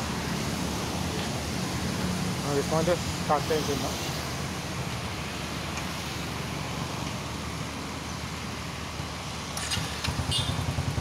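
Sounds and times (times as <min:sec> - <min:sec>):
motorcycle engine idling: 0:09.8 - 0:11.0.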